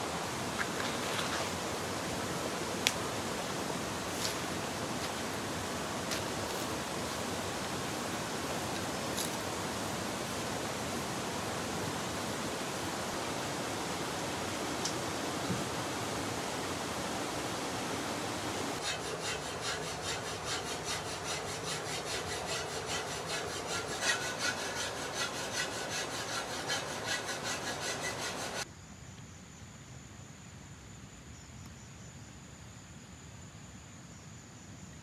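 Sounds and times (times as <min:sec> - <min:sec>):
steady noisy hiss: 0:00.0 - 0:35.0
regular rasping scrape: 0:18.8 - 0:28.6.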